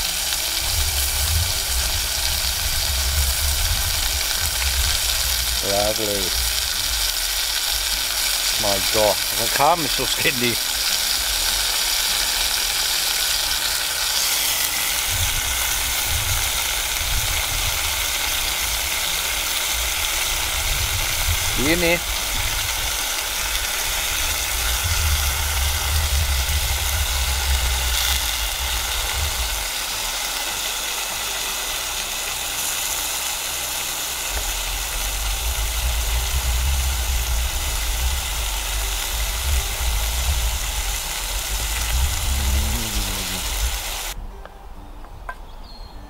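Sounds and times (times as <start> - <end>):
steady rushing hiss: 0.0 - 44.3
wind rumbling on microphone: 0.6 - 7.6, 15.0 - 29.9, 34.5 - 44.2.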